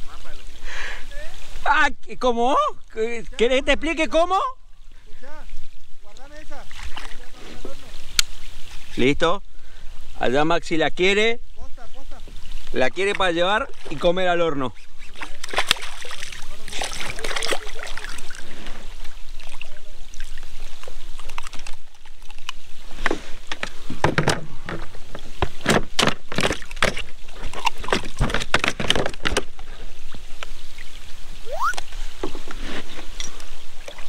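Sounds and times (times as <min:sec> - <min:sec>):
fish splashing at surface: 0:15.1 - 0:18.6.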